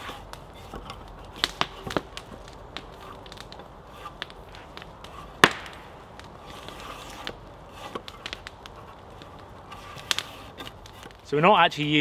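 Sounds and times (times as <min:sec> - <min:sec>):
drawknife scraping bark: 0:00.0 - 0:02.0, 0:02.8 - 0:05.5, 0:06.4 - 0:11.2
wood crack: 0:00.0 - 0:11.3.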